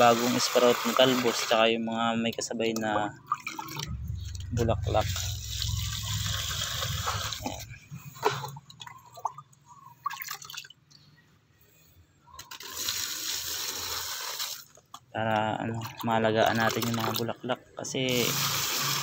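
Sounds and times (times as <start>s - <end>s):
liquid pouring onto leaves and soil: 5.0s - 7.6s, 12.4s - 14.6s.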